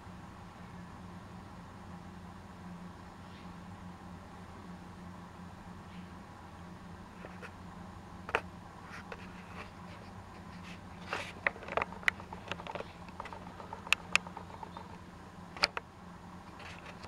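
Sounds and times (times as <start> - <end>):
faint steady hum: 0.0 - 17.0
small clicks and taps: 9.0 - 15.0, 15.6 - 15.8.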